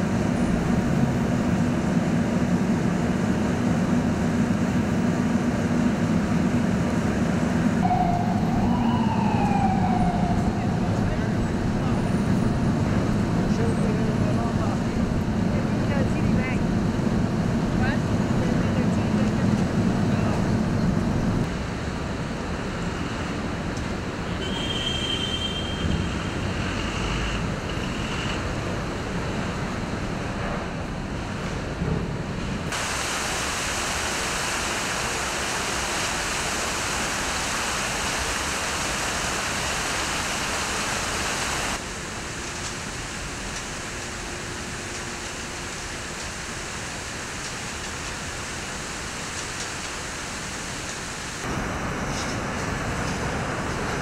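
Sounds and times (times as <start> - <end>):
city street noise: 0.0 - 54.0
traffic rumble and hiss: 0.0 - 54.0
emergency vehicle siren wailing: 7.8 - 12.5.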